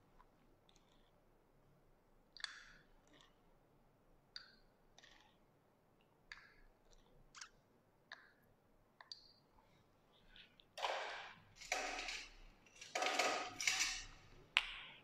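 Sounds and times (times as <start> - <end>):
metal spoon clinking glass: 11.6 - 14.3.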